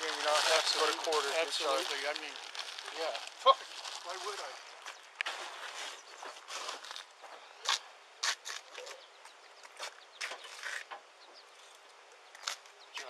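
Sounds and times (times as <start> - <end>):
faint outdoor background: 0.0 - 13.0.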